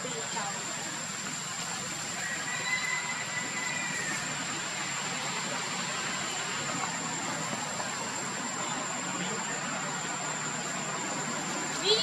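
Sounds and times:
rushing background noise: 0:00.0 - 0:12.0.

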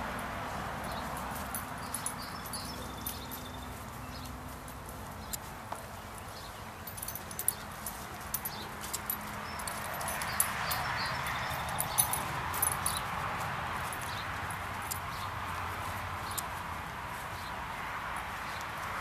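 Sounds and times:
metal collar tag clinking: 0:00.8 - 0:05.5, 0:06.3 - 0:13.2, 0:13.8 - 0:15.2
paws scuffing grass: 0:01.0 - 0:19.0.

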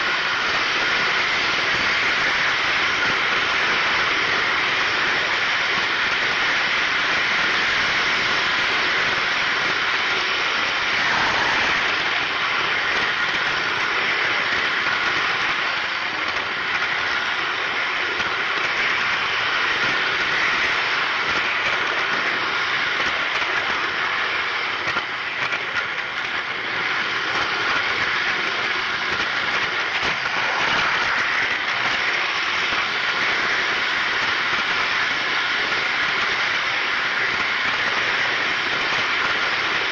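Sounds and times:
model train wheels rolling on track: 0:00.0 - 0:39.9.

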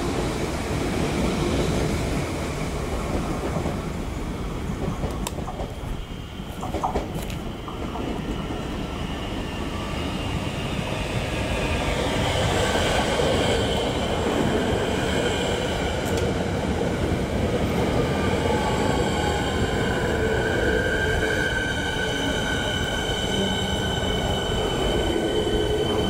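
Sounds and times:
train wheels rumbling on rails: 0:00.0 - 0:26.0
train high whining tones: 0:07.4 - 0:26.0.

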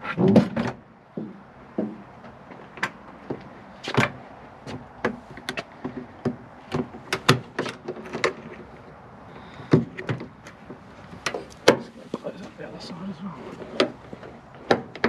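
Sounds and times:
latch clicking and knocking: 0:05.0 - 0:08.5, 0:14.6 - 0:15.0.

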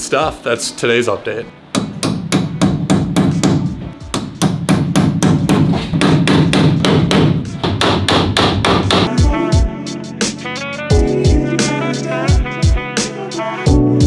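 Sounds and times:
hammer striking nails into wood: 0:01.8 - 0:09.1.

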